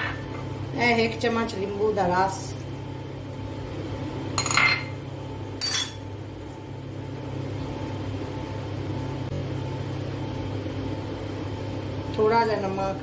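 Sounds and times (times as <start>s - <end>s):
steady low hum: 0.0s - 13.0s
metal spoon clinking: 5.6s - 6.0s.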